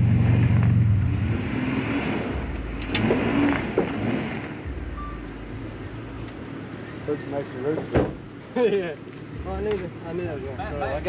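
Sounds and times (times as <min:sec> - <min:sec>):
off-road vehicle engine running low: 0:00.0 - 0:08.3
sharp knocks: 0:07.8 - 0:08.2.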